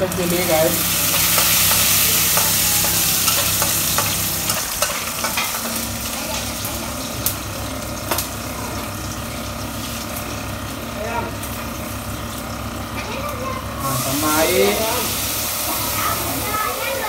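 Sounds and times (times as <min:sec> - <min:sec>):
chilies sizzling in a pan: 0:00.0 - 0:17.0
spoon tapping and scraping pan: 0:01.1 - 0:05.7.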